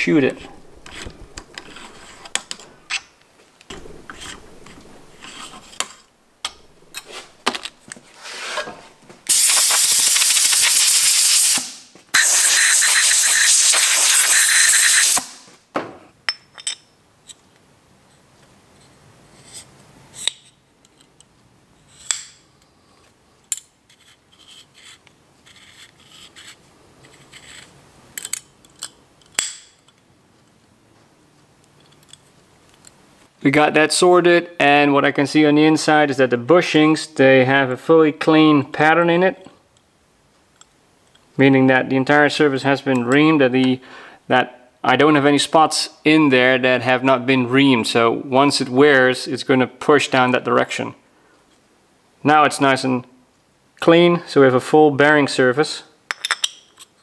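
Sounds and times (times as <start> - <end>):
loud hissing blasts: 9.3 - 15.5
small metal clicks and knocks: 31.6 - 33.0.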